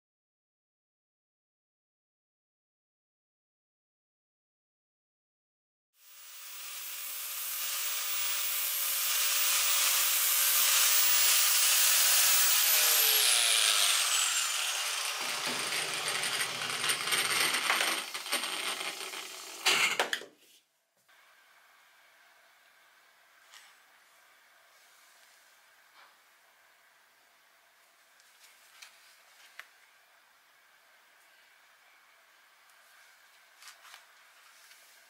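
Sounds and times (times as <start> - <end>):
grinder spinning down whine: 6.0 - 19.7
angle grinder running: 6.0 - 20.0
tools clattering on workbench: 19.7 - 20.2.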